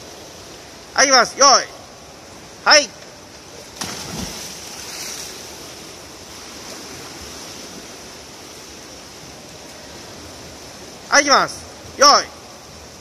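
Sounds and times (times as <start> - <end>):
rushing wash of churned water: 0.0 - 13.0
diver hitting pool water: 3.7 - 5.4.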